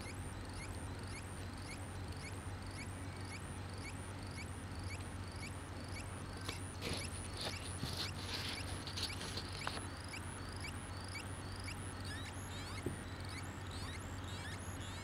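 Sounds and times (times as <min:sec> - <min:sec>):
low background hum: 0:00.0 - 0:15.0
electronic bird-like chirps: 0:09.6 - 0:15.0.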